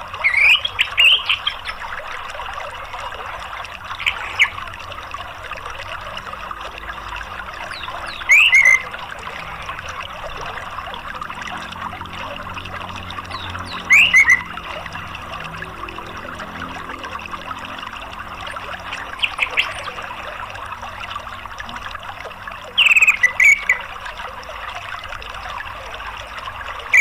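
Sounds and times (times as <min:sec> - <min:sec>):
running water rushing: 0:00.0 - 0:27.0
bird chirping: 0:00.2 - 0:01.8, 0:04.0 - 0:04.6, 0:07.6 - 0:08.9, 0:13.3 - 0:14.6, 0:18.9 - 0:20.2, 0:22.8 - 0:23.8.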